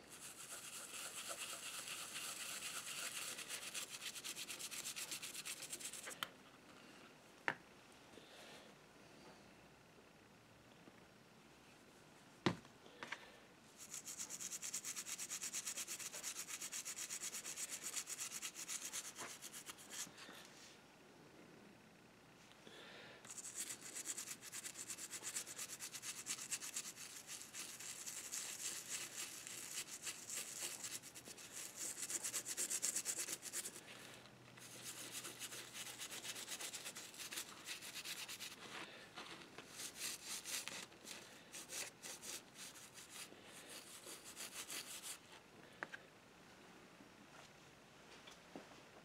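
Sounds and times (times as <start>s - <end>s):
toothbrush scrubbing metal: 0.1s - 6.2s, 13.8s - 20.1s, 23.3s - 33.8s, 34.6s - 38.6s, 39.7s - 45.2s.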